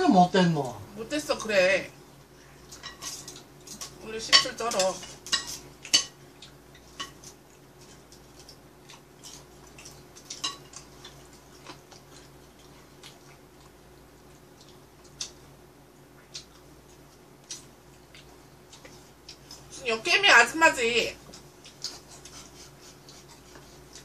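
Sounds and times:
chopsticks tapping on plates: 2.7 - 8.0, 9.3 - 11.8.

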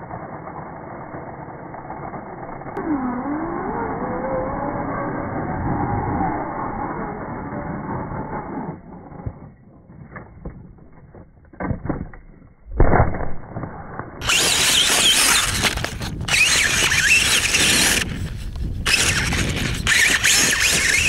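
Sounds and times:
motor and gears whining: 0.0 - 9.5, 14.2 - 21.0.

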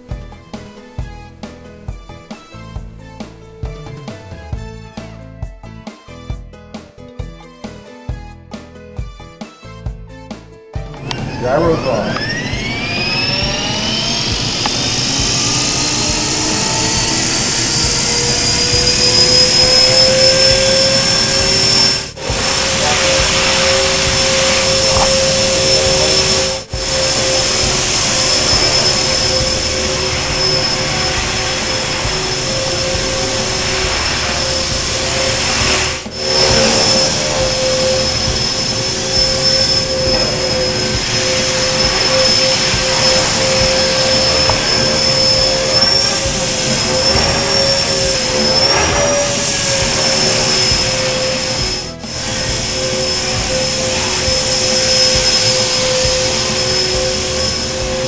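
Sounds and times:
electric helicopter motor whine: 0.0 - 5.0, 10.8 - 58.0.

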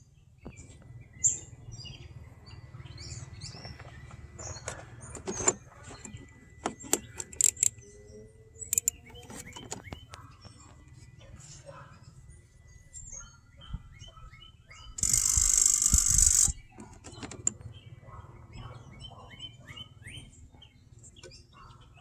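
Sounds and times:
small birds chirping: 0.0 - 22.0.

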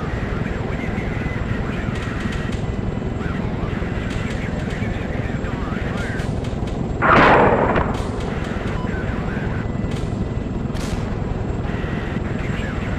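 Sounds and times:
explosion blast: 7.0 - 9.2
steady low rumble: 7.0 - 9.9.

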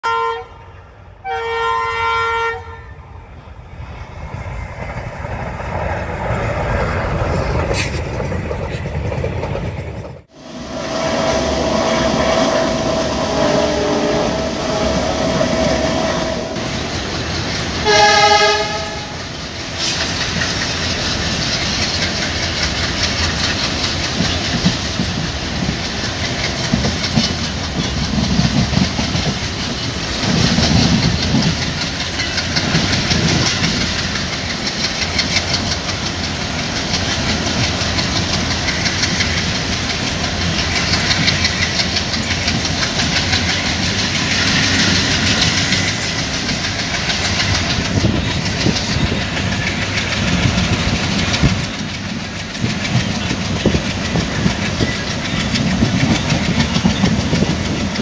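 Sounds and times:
locomotive horn blasts: 0.0 - 3.0, 11.7 - 16.6, 17.8 - 19.2
train rumble: 0.0 - 58.0
train wheels clattering on rails: 4.2 - 58.0.

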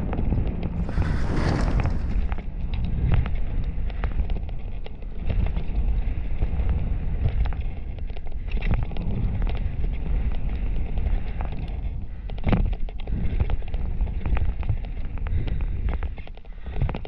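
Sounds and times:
wind rushing over microphone: 0.0 - 17.0
tyres rolling on loose stones: 0.8 - 2.4
bike rattling: 0.8 - 2.5.

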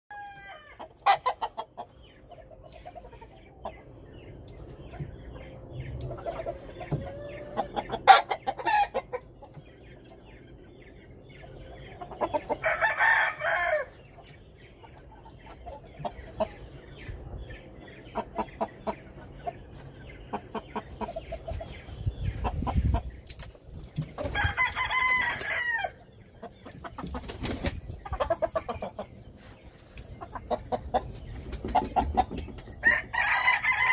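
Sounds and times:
roosters crowing: 0.1 - 1.2, 7.0 - 9.0, 12.5 - 14.0, 24.2 - 26.0, 32.8 - 33.9
chickens clucking: 0.1 - 33.9.

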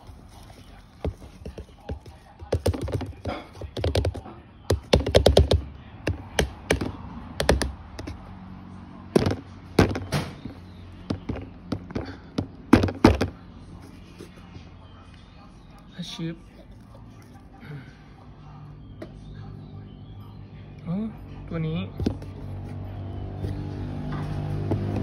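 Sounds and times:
plastic cup tapping on tub: 1.0 - 8.1, 11.1 - 13.3.

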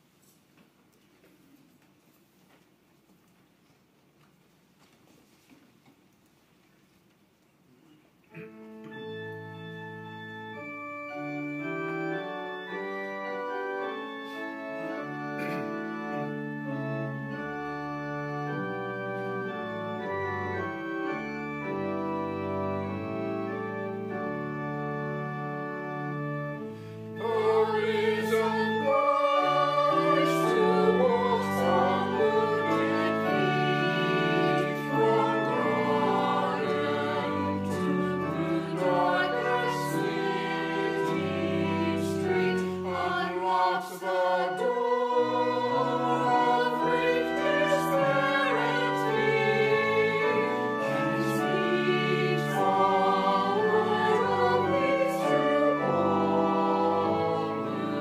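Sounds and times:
church organ playing chords: 8.3 - 58.0
choir singing: 26.6 - 58.0.

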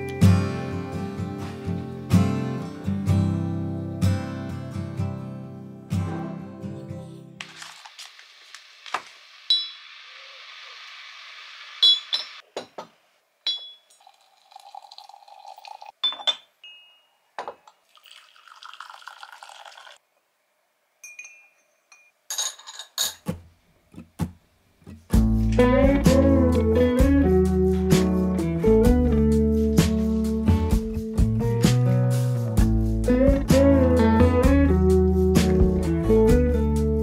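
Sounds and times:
guitar music: 0.0 - 7.4, 24.9 - 37.0
steady hiss: 7.8 - 12.4
glassware clinking: 9.5 - 9.8, 11.8 - 12.8, 13.4 - 18.8, 21.0 - 23.3.

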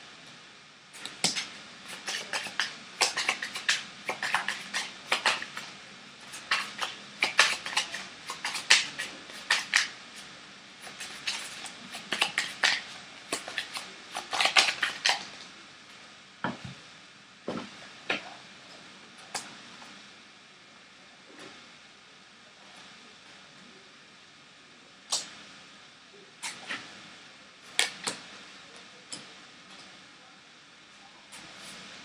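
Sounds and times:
cards being shuffled: 1.0 - 5.7, 6.3 - 15.5.

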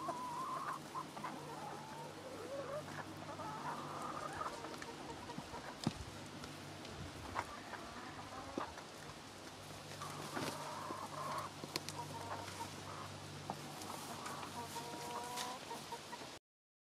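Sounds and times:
chickens clucking: 0.0 - 16.4.

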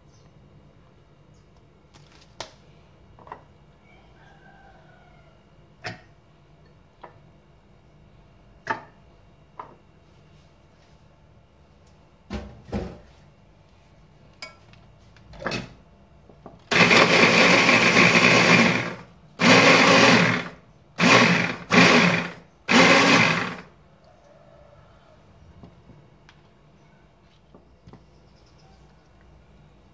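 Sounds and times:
hand blender motor chopping: 16.7 - 23.7.

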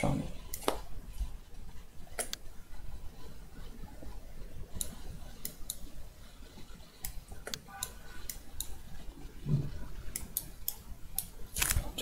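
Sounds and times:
computer mouse clicking: 2.1 - 2.4, 4.7 - 5.9, 7.0 - 8.8, 10.1 - 11.9.

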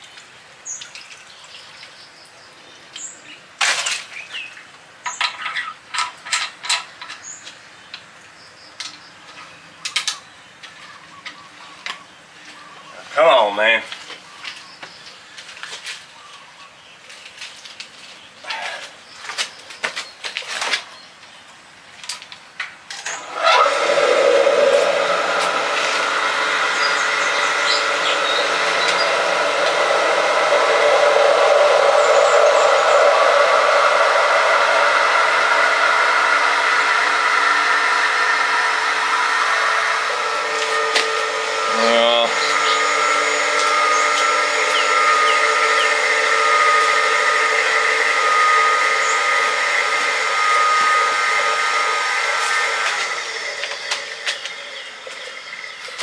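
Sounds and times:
electric pump running: 22.9 - 56.0.

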